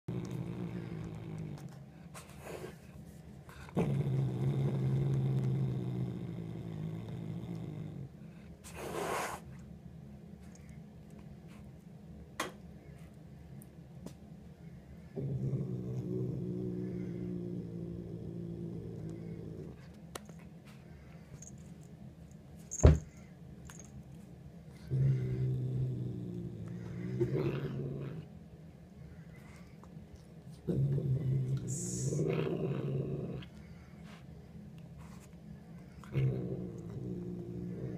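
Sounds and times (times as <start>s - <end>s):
cat growling low: 0.0s - 2.9s, 3.5s - 9.5s, 15.0s - 20.0s, 24.7s - 28.4s, 30.6s - 34.0s, 35.8s - 37.9s.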